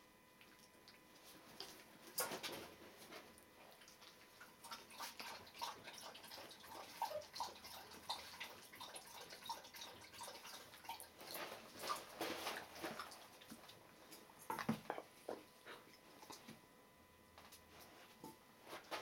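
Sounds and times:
puppy lapping from metal bowl: 3.7 - 13.7.

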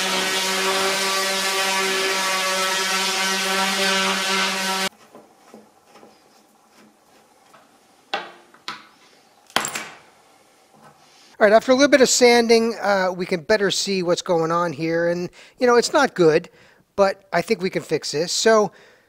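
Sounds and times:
orbital sander on wood: 0.0 - 4.9.

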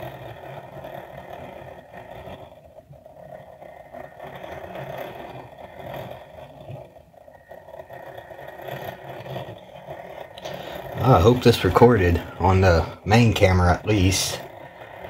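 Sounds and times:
clock gears whirring: 0.0 - 15.0.

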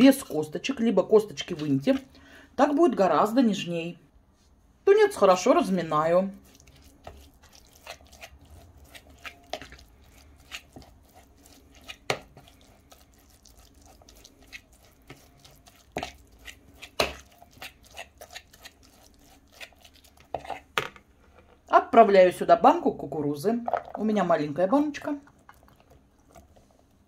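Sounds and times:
fork mashing tuna: 6.4 - 20.8.

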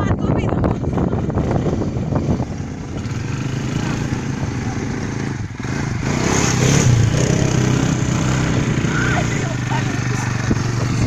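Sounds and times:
quad bike engines running: 0.0 - 11.0.

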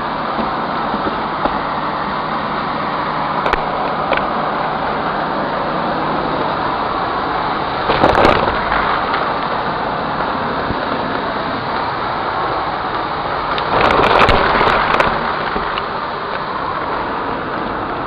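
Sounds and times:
debris crunching and rattling: 7.7 - 12.0, 12.8 - 17.0.

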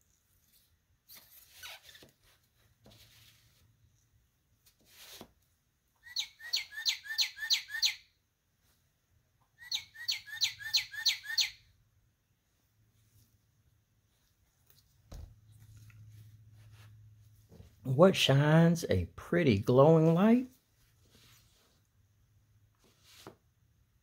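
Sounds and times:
handling scrapes: 0.0 - 3.8, 4.6 - 5.4, 14.1 - 17.8, 20.6 - 22.0, 22.8 - 23.5
electronic bird call chirps: 6.0 - 8.1, 9.6 - 11.7.

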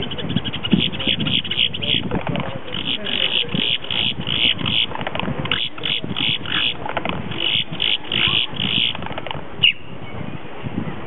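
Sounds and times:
grackle harsh chattering calls: 0.0 - 9.8.

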